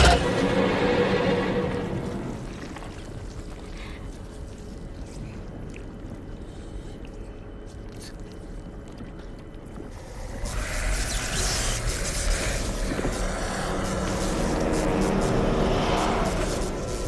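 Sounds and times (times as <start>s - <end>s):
faint water sounds: 1.4s - 14.4s.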